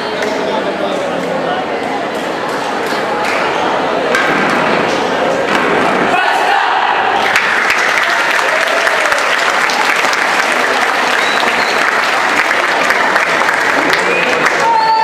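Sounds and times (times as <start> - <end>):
people shouting: 6.0 - 7.4
crowd applauding and cheering: 7.1 - 15.0.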